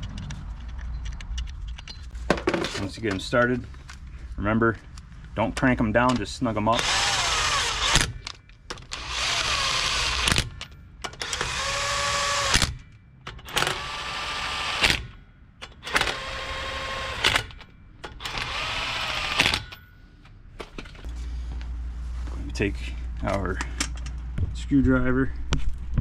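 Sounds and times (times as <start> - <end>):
cordless power tool whining: 6.8 - 8.0, 9.0 - 10.5, 11.2 - 12.7, 18.2 - 19.6.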